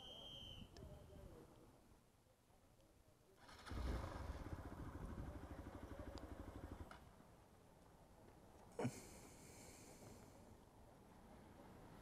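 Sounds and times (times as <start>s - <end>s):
motorcycle engine idling: 3.7s - 6.9s.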